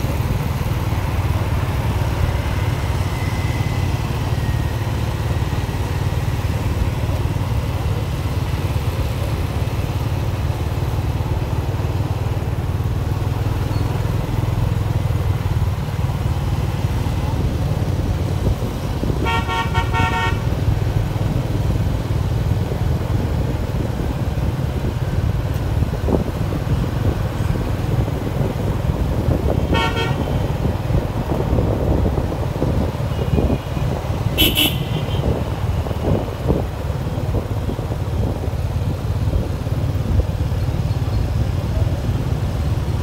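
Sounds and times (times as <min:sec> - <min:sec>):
low rumble of traffic: 0:00.0 - 0:43.0
high horn beep: 0:19.2 - 0:20.5, 0:29.6 - 0:30.4, 0:34.4 - 0:35.4
vehicle horn tooting: 0:19.2 - 0:20.5, 0:29.6 - 0:30.5, 0:34.3 - 0:35.4.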